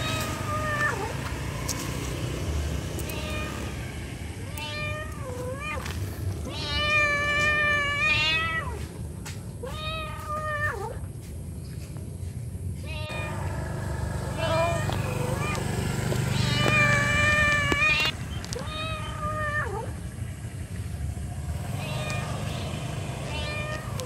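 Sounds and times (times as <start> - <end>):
cat meowing: 0.0 - 1.2, 3.0 - 3.8, 4.4 - 8.9, 9.6 - 11.0, 12.8 - 13.5, 14.4 - 15.6, 16.3 - 20.0, 21.8 - 24.0.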